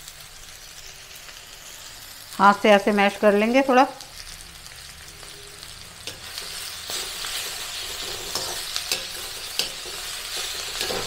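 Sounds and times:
vegetables sizzling in oil: 0.0 - 11.0
utensil scraping a pan: 6.1 - 11.0.

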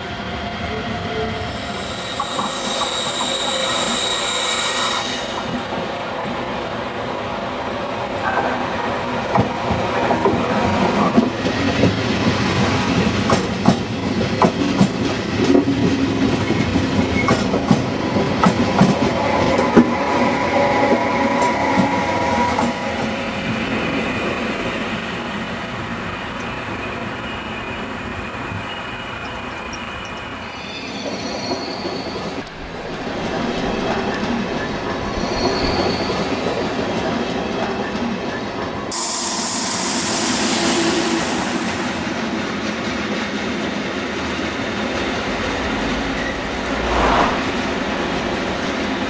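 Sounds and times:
thin high squeal: 1.6 - 5.3
train wheels clicking over rails: 9.3 - 24.3
train rumble: 40.2 - 49.0.

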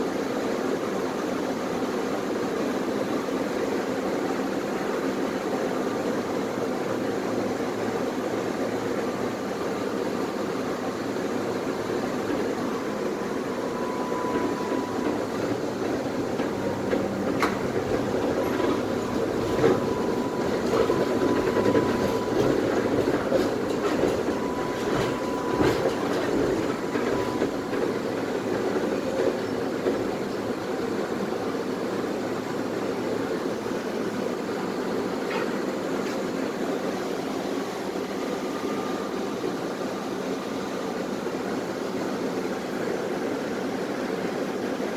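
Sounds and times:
tram wheels rumbling: 0.0 - 44.9
wheels clacking over rails: 11.6 - 31.8.

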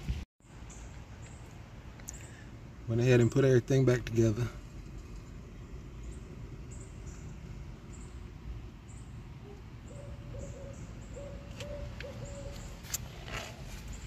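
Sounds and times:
low outdoor rumble: 0.0 - 14.0
bird hooting call: 9.4 - 12.8.

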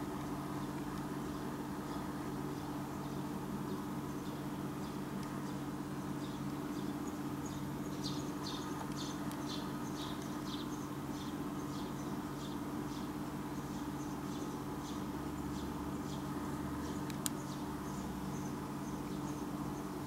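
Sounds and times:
steady low hum: 0.0 - 20.0
small bird chirping: 1.3 - 20.0.

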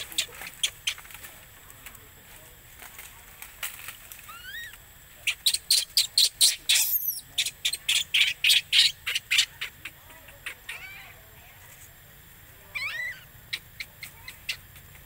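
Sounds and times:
baby monkey screaming: 0.0 - 1.1, 4.2 - 11.2, 12.7 - 14.7.

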